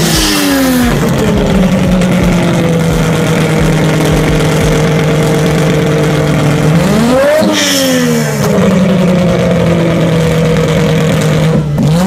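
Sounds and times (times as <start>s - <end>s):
trike engine idling: 0.0s - 12.0s.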